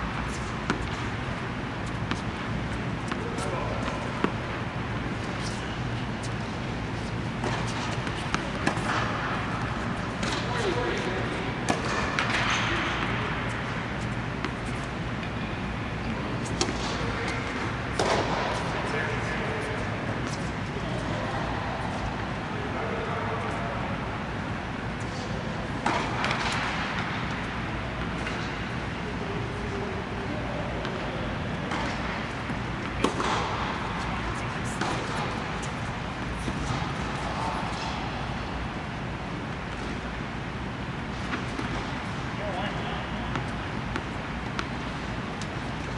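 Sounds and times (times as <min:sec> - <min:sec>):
low hum of blowers: 0:00.0 - 0:45.9
racket striking tennis ball: 0:00.1 - 0:01.2, 0:01.9 - 0:04.5, 0:05.3 - 0:14.9, 0:16.5 - 0:18.9, 0:25.1 - 0:27.4, 0:30.8 - 0:38.2, 0:43.3 - 0:45.9.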